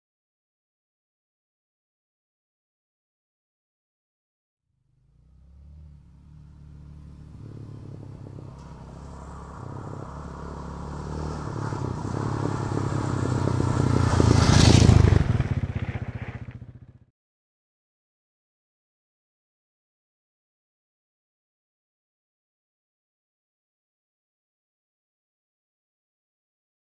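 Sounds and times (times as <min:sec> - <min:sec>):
off-road motorcycle engine: 0:04.8 - 0:17.1.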